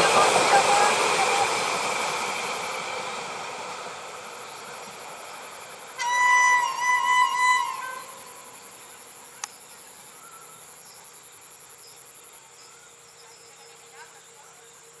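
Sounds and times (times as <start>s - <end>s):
insects trilling: 3.6s - 15.0s.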